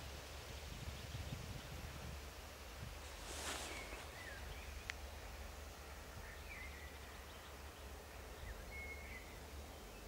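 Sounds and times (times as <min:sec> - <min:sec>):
songbird chirps: 0:02.6 - 0:10.0.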